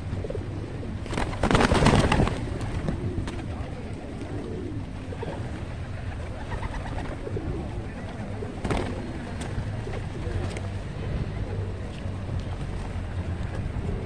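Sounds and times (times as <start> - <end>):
pigeons cooing: 0.0 - 12.0, 13.1 - 14.0
wings flapping: 1.0 - 3.6, 5.2 - 7.4, 8.4 - 10.7.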